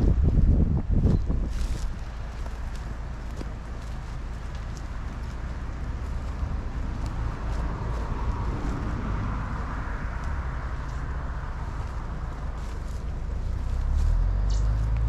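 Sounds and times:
faint footsteps: 0.0s - 15.0s.

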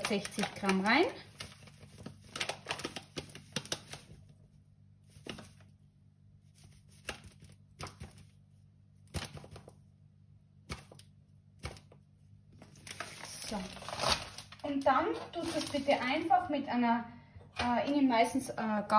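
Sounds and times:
paper bag crinkling: 0.0s - 4.2s, 12.6s - 16.3s.

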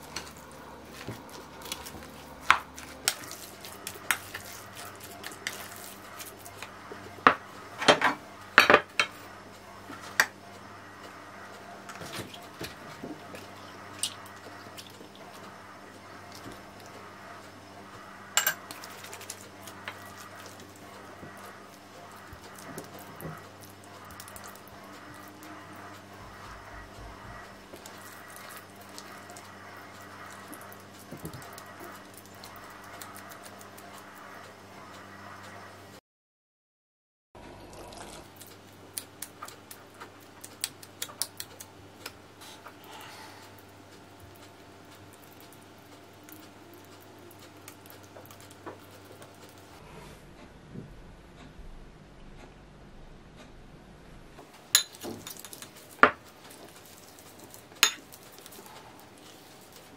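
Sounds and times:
low steady hum: 0.0s - 36.0s, 37.4s - 59.9s
utensil clinking against dish: 18.4s - 18.9s.

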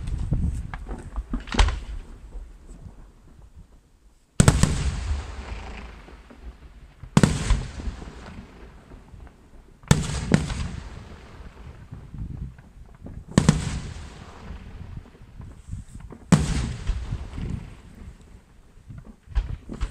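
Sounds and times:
firework booms with echo: 4.4s - 19.9s.

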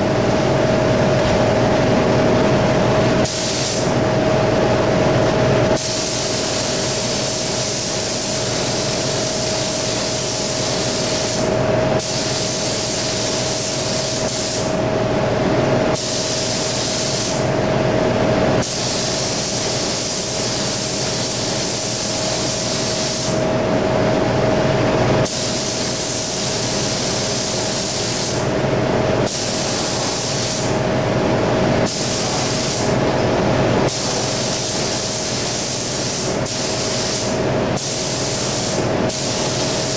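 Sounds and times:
steady hum: 0.0s - 39.9s
paint spray gun hissing: 3.2s - 3.9s, 5.8s - 14.8s, 16.0s - 17.5s, 18.6s - 23.4s, 25.2s - 28.5s, 29.3s - 30.8s, 31.8s - 33.0s, 33.9s - 39.9s.

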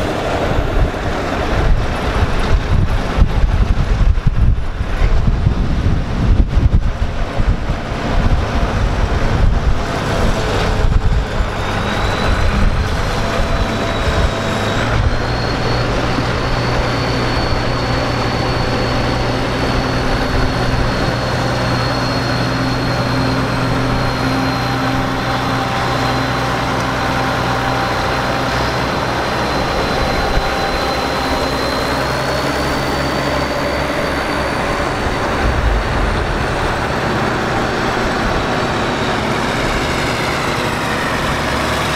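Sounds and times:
high whine: 0.0s - 41.9s
tractor engine running: 0.0s - 41.9s
wind rumbling on microphone: 0.0s - 41.9s.

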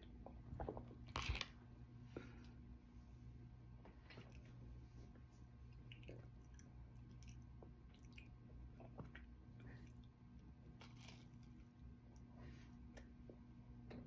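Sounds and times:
low steady hum: 0.0s - 14.0s
chewing bread roll: 4.0s - 14.0s.

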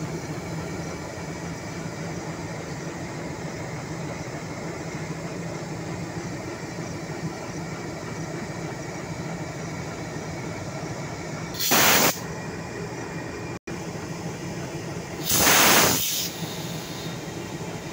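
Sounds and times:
locomotive humming: 0.0s - 17.9s
compressed air hissing: 11.6s - 12.2s, 15.2s - 17.6s.

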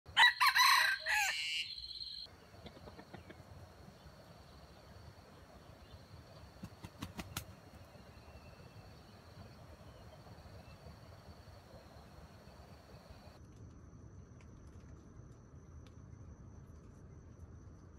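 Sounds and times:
rooster crowing: 0.1s - 3.3s
high insect whine: 3.2s - 13.4s.

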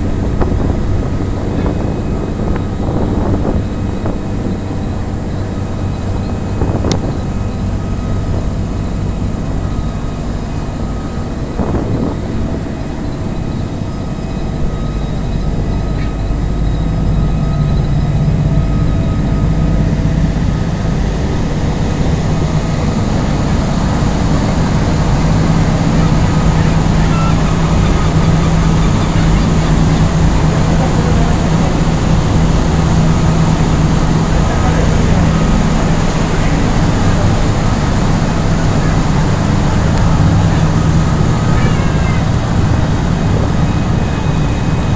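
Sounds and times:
motorboat engine running: 0.0s - 44.9s
water churning: 0.0s - 44.9s.

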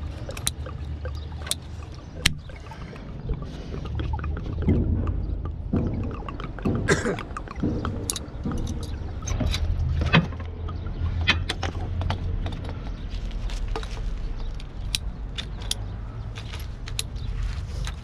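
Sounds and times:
steady low rumble: 0.0s - 18.0s
hand tool clicking on plastic pipe: 4.6s - 12.9s.

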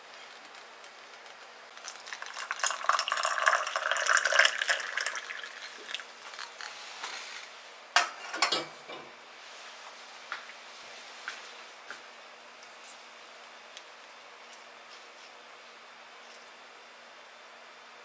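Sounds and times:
water pouring into teapot: 1.7s - 6.8s.

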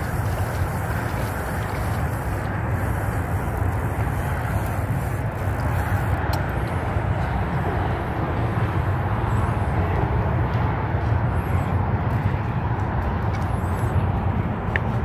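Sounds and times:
outdoor background rumble and hiss: 0.0s - 15.0s.

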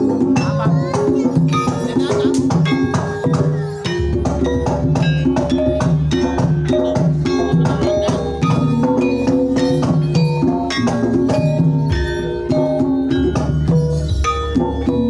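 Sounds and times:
hand drum strokes: 0.0s - 15.0s
keyed percussion ringing: 0.0s - 15.0s.

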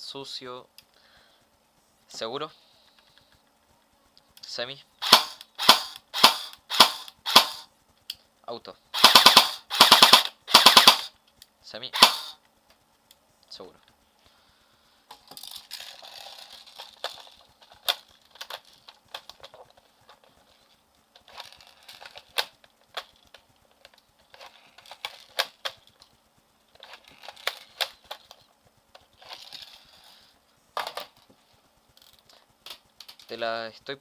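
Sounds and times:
faint steady hum: 0.0s - 34.0s
rustling: 12.3s - 33.6s.

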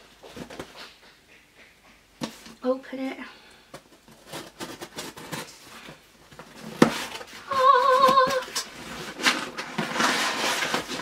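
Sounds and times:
cardboard flaps rustling: 3.7s - 11.0s
person humming: 7.5s - 8.6s.

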